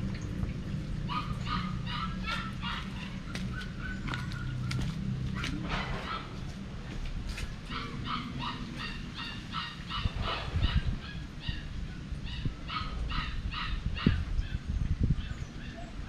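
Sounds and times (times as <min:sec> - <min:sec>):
puppy yelping: 0:01.1 - 0:04.6, 0:07.7 - 0:11.2.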